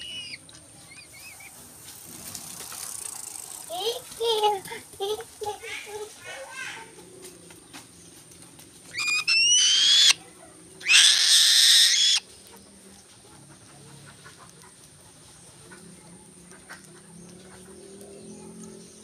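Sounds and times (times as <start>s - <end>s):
hawk hissing screech: 9.0s - 10.2s, 10.8s - 12.2s
hawk whistled squeal: 9.0s - 10.2s, 10.9s - 12.2s.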